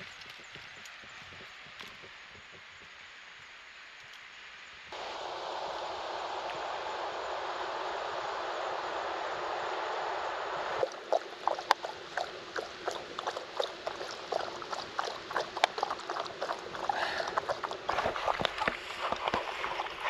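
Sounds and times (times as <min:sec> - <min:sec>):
rushing water: 0:00.0 - 0:20.0
water splashing and lapping: 0:10.8 - 0:20.0.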